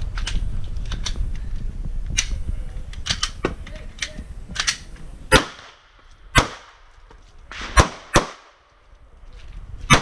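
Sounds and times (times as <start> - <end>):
rifle shots with echo: 5.3 - 6.8, 7.5 - 8.7.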